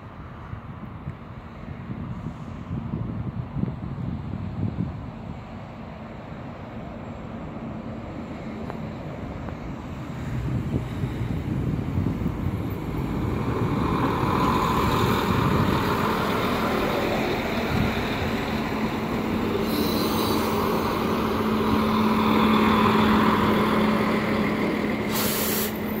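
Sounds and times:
railcar engine hum: 0:00.0 - 0:26.0
brief hisses: 0:19.6 - 0:20.5, 0:25.1 - 0:25.9.

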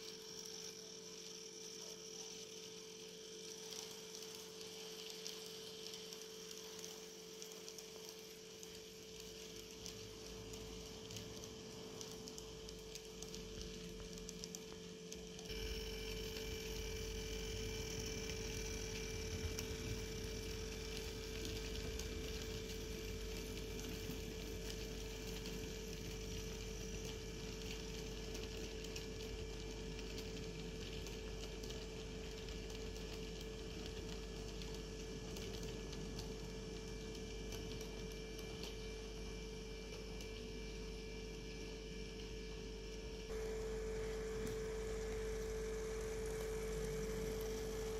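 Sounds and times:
model train motor hum: 0:00.0 - 0:32.1.

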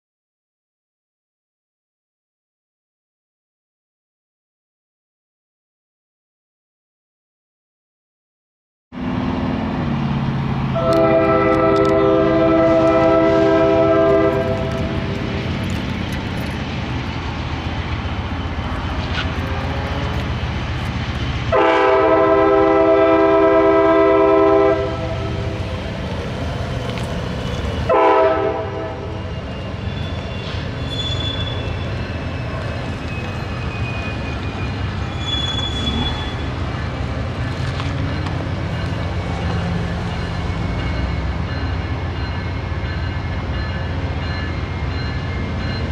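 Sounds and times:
train rumbling: 0:09.0 - 0:45.9
locomotive horn blasts: 0:10.8 - 0:15.1, 0:21.5 - 0:25.6, 0:27.9 - 0:29.2.

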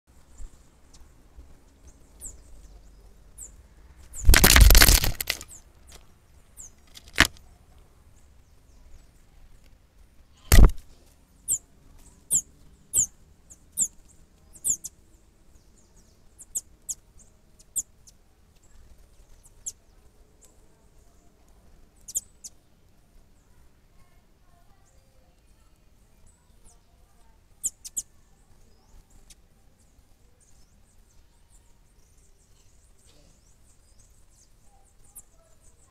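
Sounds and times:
bird wings flapping: 0:04.1 - 0:06.0, 0:10.5 - 0:10.8
sharp knocks: 0:10.5 - 0:10.8
high chip calls of bird: 0:12.3 - 0:13.2, 0:13.8 - 0:14.0, 0:14.6 - 0:14.9, 0:22.1 - 0:22.5.

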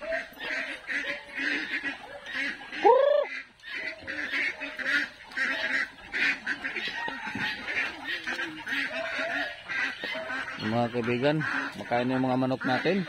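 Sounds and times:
ducks chattering: 0:00.0 - 0:13.0
loud rising duck call: 0:02.8 - 0:03.5.

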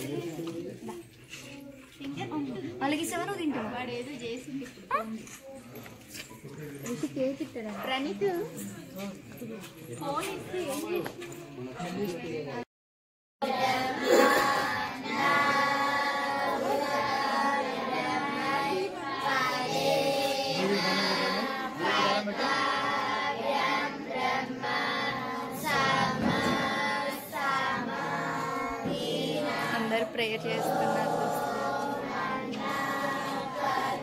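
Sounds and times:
high child-like singing voices: 0:13.4 - 0:29.9, 0:30.9 - 0:34.0.

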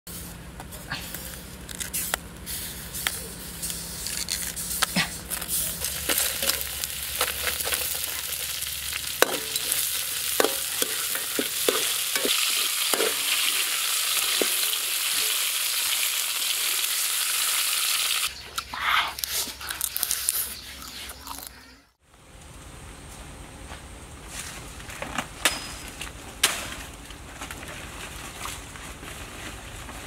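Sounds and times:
beetles sizzling in a wok: 0:05.3 - 0:18.4
metal spatula scraping a wok: 0:05.5 - 0:15.4.

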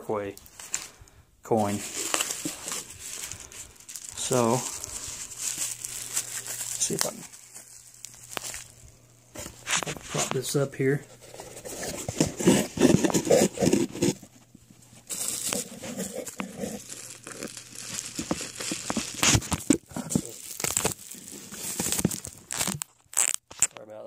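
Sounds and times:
bubble wrap crinkling: 0:00.4 - 0:23.8
knocks and scrapes: 0:11.1 - 0:14.3.

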